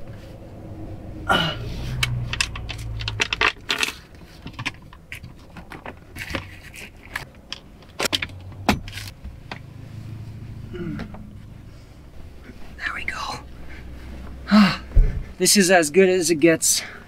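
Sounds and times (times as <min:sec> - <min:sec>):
bedding rustling: 0:11.3 - 0:15.8.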